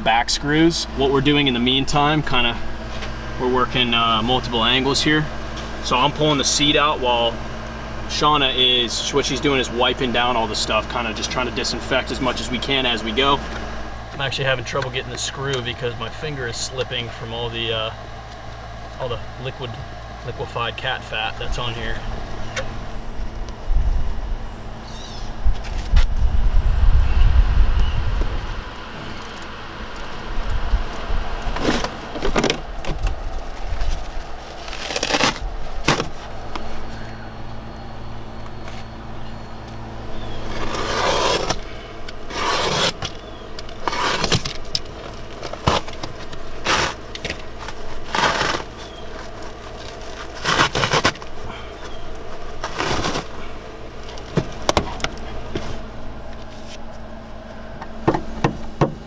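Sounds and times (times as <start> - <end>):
faint hum: 0.0 - 59.0
scraper on bare metal: 40.5 - 41.6, 42.3 - 43.1, 43.8 - 44.5.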